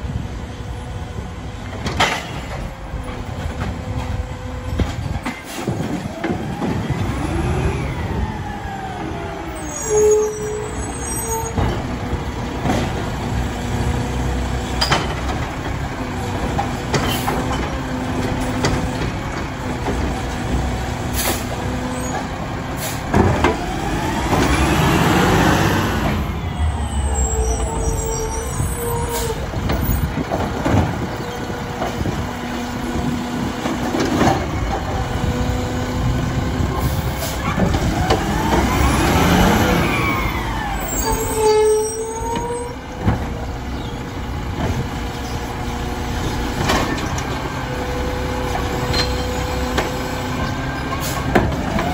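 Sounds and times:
garbage truck engine revving: 11.5 - 41.8
air brakes hissing: 21.1 - 21.6, 22.8 - 23.1.

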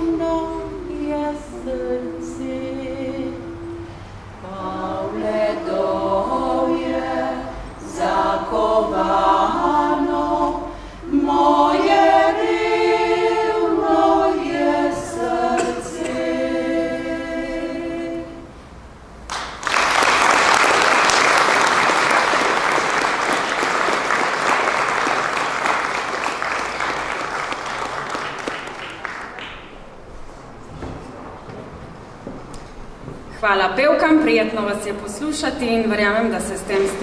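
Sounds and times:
women's choir singing a cappella: 0.0 - 18.7, 35.6 - 37.0
applause: 19.3 - 29.8.

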